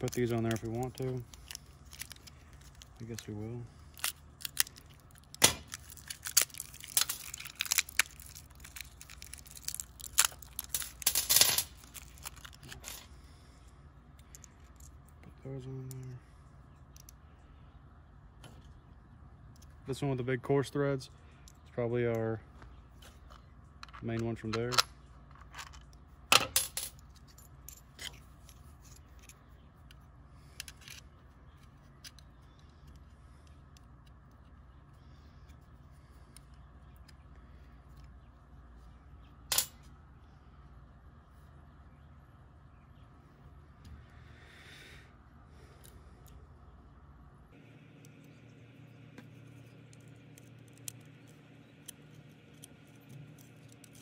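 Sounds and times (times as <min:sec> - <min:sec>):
plastic bag crinkling: 0:00.0 - 0:11.1, 0:11.7 - 0:12.8.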